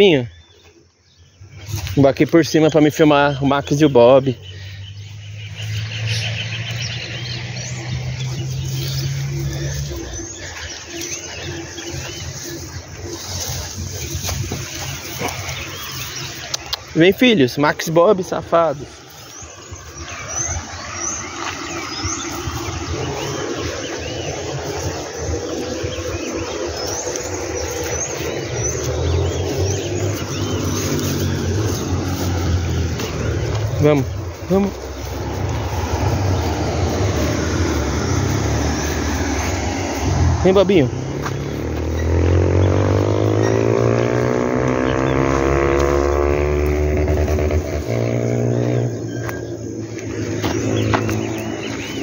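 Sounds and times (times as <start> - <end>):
birds chirping: 0.0 - 52.0
steady low rumble: 18.3 - 43.6.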